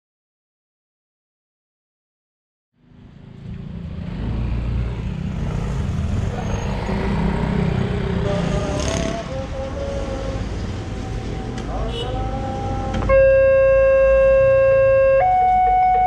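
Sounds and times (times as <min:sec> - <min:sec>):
motorcycle engines running: 0:03.1 - 0:13.1.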